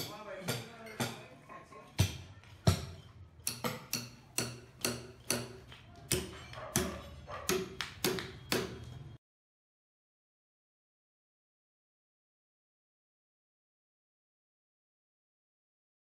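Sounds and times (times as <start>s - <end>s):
sharp knocks with ringing: 2.0s - 9.0s.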